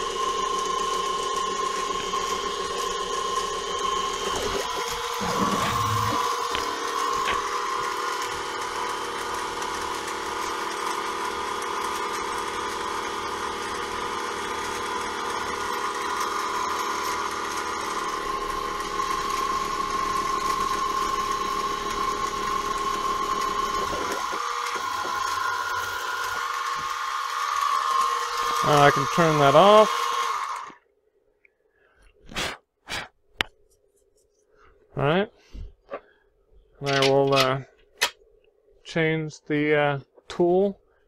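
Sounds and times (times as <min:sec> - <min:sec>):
mill spindle motor whine: 0:00.0 - 0:30.8.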